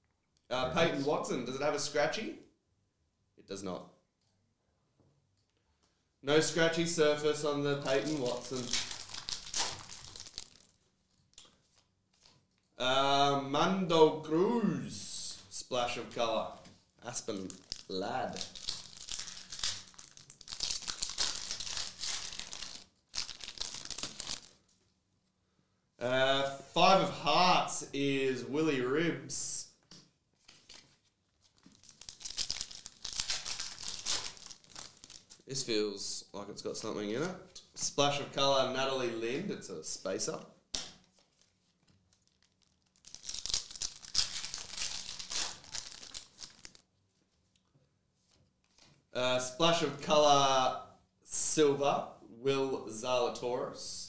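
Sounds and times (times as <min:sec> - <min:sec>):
wrapper crinkling: 0:07.8 - 0:12.7, 0:17.0 - 0:24.8, 0:30.4 - 0:35.5, 0:40.9 - 0:47.7.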